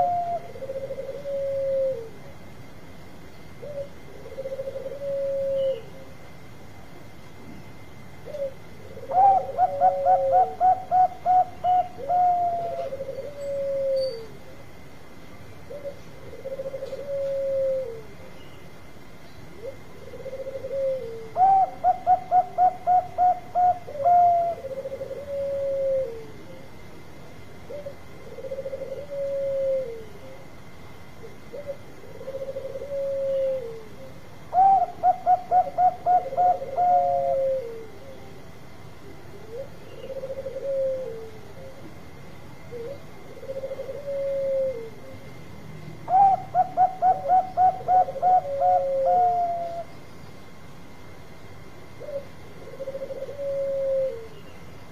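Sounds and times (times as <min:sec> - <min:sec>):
dove cooing: 0:00.0 - 0:02.9, 0:03.5 - 0:06.5, 0:07.6 - 0:54.9.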